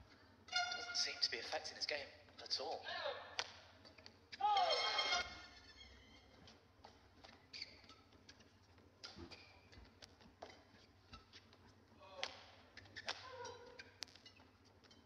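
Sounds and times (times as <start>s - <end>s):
shoes squeaking on court: 0.5s - 1.2s, 3.4s - 15.0s
rackets hitting shuttlecock: 3.4s - 3.7s, 12.1s - 14.2s.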